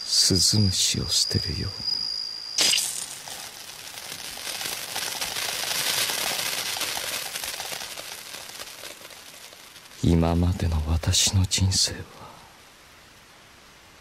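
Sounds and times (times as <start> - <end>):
cricket chirping: 0.0 - 5.5
crackling hiss: 0.0 - 14.0.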